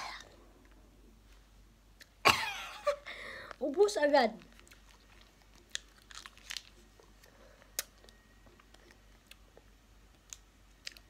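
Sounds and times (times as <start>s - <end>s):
plastic sachet being torn open: 4.3s - 6.9s.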